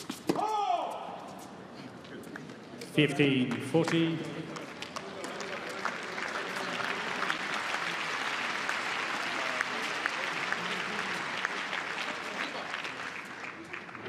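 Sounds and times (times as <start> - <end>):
crowd applauding: 4.6 - 14.0.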